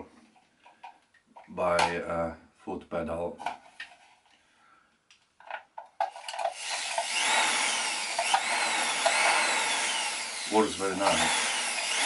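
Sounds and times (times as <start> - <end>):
grinder motor whining: 6.2 - 12.0.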